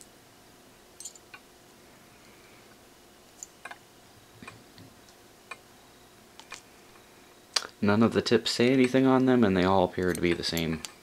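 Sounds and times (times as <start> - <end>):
small metal parts clicking: 1.0 - 1.3, 10.0 - 10.8.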